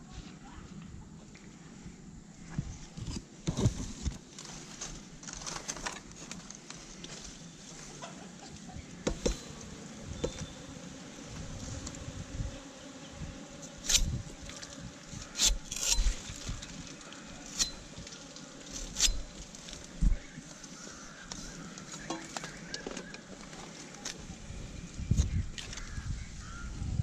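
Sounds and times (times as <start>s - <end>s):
steady buzzing hum: 6.9s - 26.6s.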